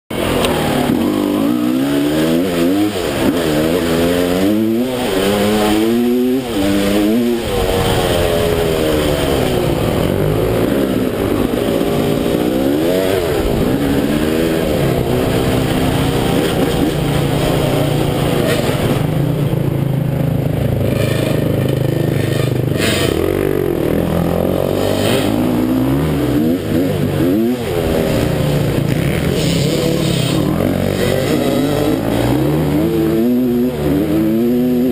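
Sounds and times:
dirt bike engine revving: 0.1s - 34.9s.

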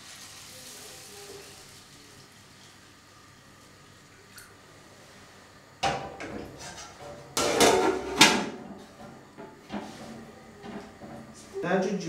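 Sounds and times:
dishes and utensils clattering: 5.8s - 11.5s.

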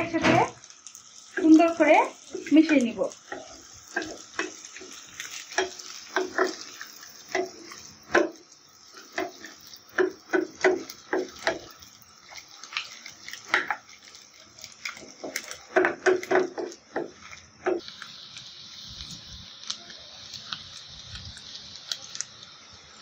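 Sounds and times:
food sizzling in oil: 0.0s - 23.0s
wooden spoon scraping frying pan: 1.3s - 18.3s.

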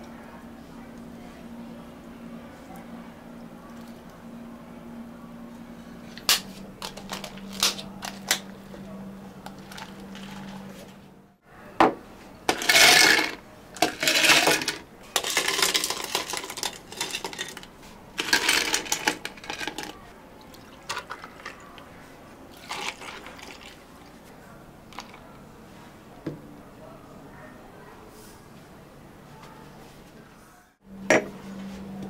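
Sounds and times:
low machine hum: 0.0s - 29.6s, 30.2s - 32.0s
cups and ice clinking: 11.8s - 21.9s, 22.5s - 24.2s, 24.9s - 25.3s.

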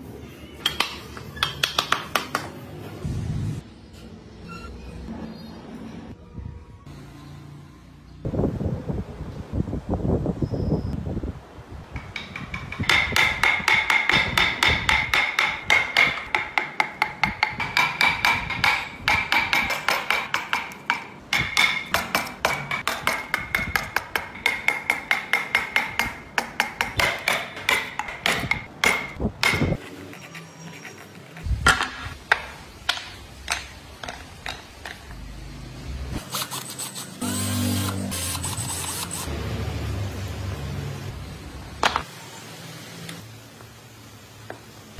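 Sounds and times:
scattered knocks: 11.9s - 29.8s
chisel struck into wood: 12.0s - 29.8s.

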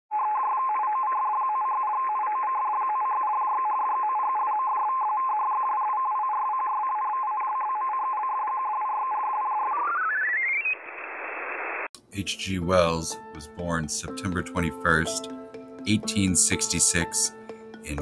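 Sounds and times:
telephone line beeping tones: 0.1s - 10.5s
rising stepped tones: 8.8s - 11.9s.

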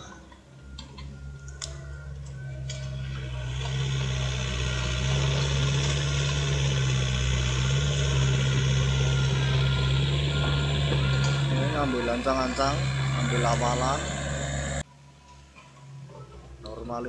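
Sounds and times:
excavator diesel engine running: 0.0s - 14.9s.

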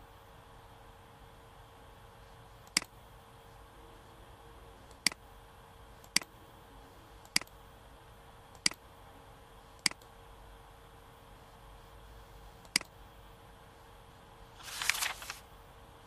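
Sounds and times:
faint steady hum: 0.0s - 16.0s
computer mouse clicks: 2.6s - 3.0s, 4.9s - 5.2s, 6.0s - 6.3s, 7.2s - 7.6s, 8.5s - 8.8s, 9.8s - 10.1s, 12.6s - 13.0s.

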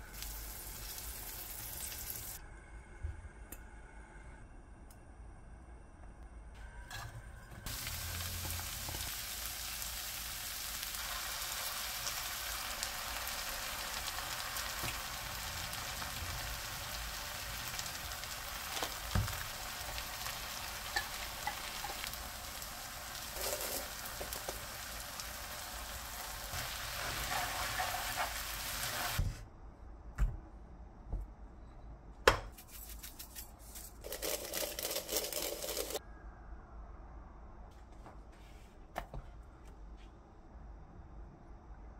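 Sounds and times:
food sizzling in a pan: 0.0s - 2.4s, 7.7s - 29.2s.

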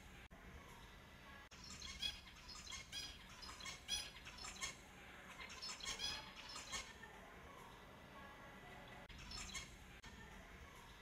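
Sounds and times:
finches chirping: 1.5s - 7.0s, 8.6s - 9.8s.

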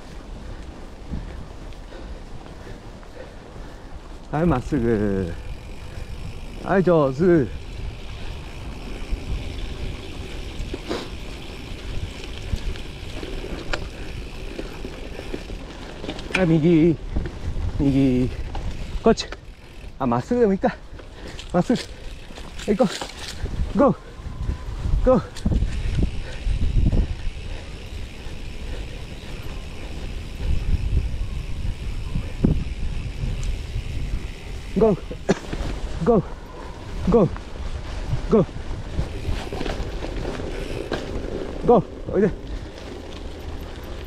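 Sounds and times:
wind rumble on microphone: 0.0s - 2.8s, 4.0s - 19.2s, 21.9s - 44.0s
bicycle tyres on dirt trail: 0.0s - 44.0s
bike clicks: 0.0s - 44.0s.

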